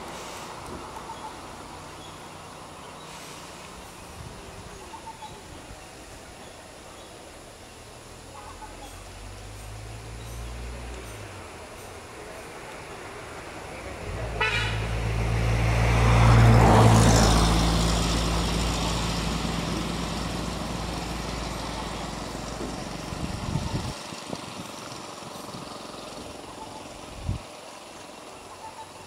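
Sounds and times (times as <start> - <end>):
vehicle engine passing by: 7.3 - 29.0.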